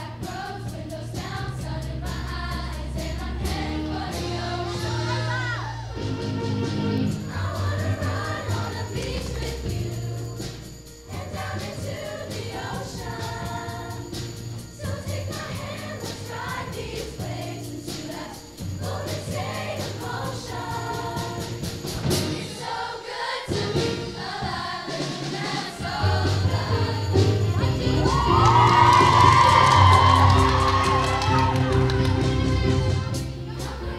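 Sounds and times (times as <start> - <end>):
choir singing: 0.0 - 33.9
drum beats: 0.0 - 33.9
bass line: 26.0 - 33.7.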